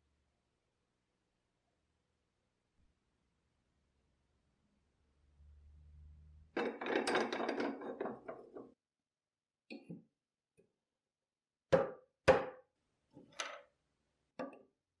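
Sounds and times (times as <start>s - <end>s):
chisel knocking into wood: 11.7s - 12.6s.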